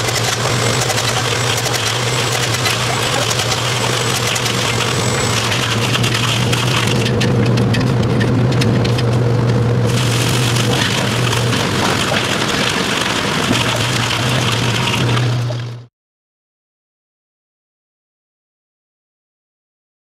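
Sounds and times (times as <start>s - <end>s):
workshop machinery humming: 0.0s - 15.9s.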